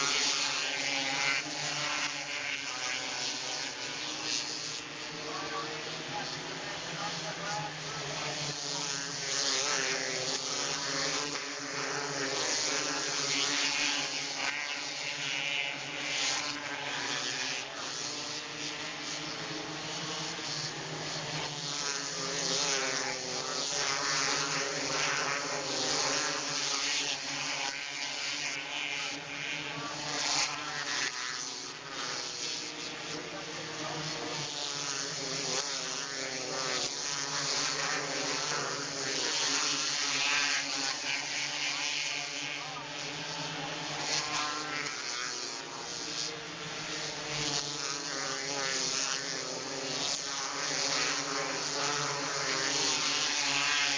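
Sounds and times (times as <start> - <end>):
race car engines droning: 0.0 - 12.0, 40.1 - 47.2.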